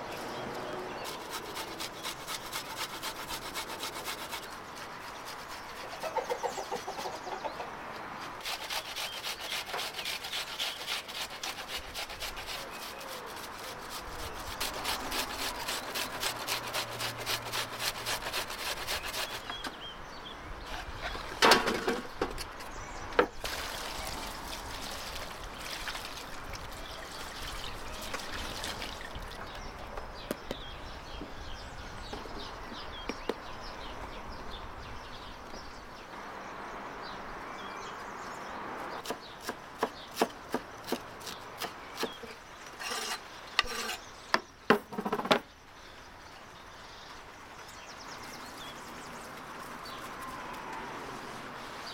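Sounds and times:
onion grated on metal grater: 8.4 - 19.5, 42.8 - 44.0.

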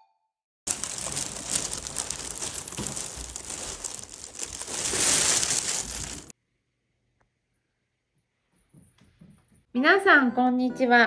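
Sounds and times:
cloth rustling on phone microphone: 0.7 - 6.3.

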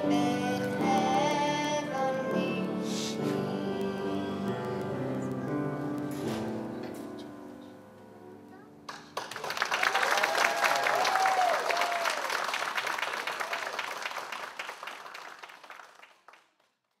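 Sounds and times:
audience applauding: 8.9 - 17.0.

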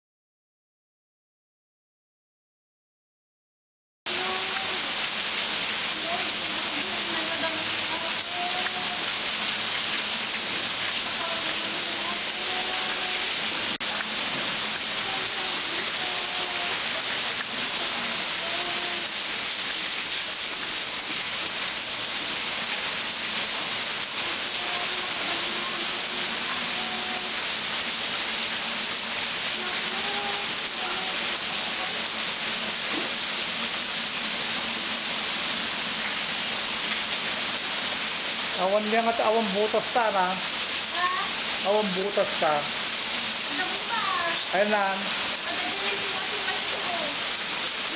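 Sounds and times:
heavy rain splashing on concrete: 4.1 - 47.9.

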